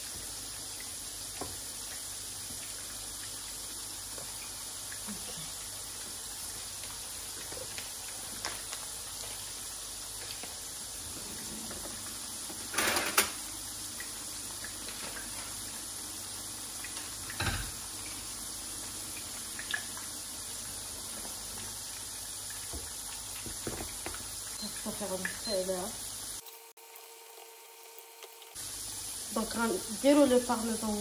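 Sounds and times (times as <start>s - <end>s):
kitchen clatter: 11.6s - 13.4s, 17.3s - 17.8s.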